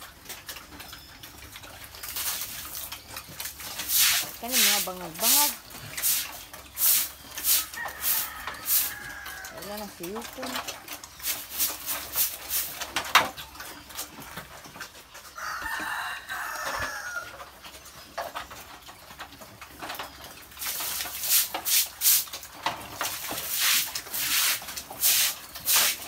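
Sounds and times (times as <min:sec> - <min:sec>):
broom scraping concrete: 0:03.6 - 0:09.0, 0:11.2 - 0:13.1, 0:20.6 - 0:26.0
rooster crowing: 0:07.6 - 0:09.7, 0:15.4 - 0:17.4.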